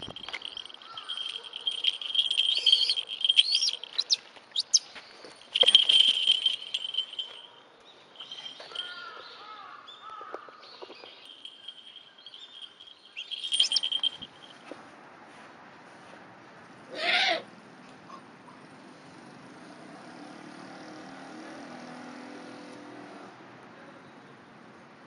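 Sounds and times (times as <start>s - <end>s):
high steady ringing tone: 0.0s - 8.9s, 11.1s - 14.7s
birds chirping and calling: 0.0s - 14.5s.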